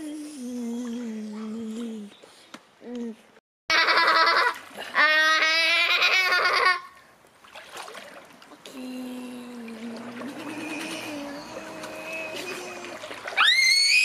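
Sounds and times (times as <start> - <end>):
pool water splashing: 3.7 - 14.0.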